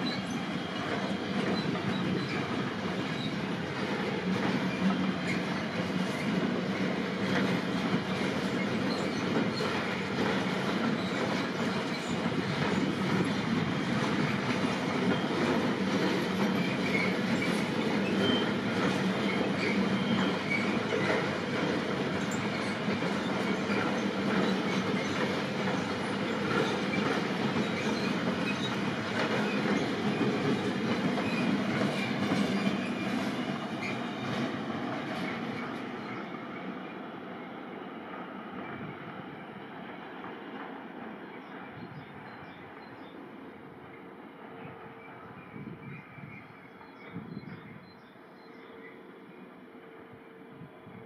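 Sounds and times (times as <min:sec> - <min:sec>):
wheel squeals: 0:00.0 - 0:36.3
train wheels on rail: 0:00.0 - 0:51.0.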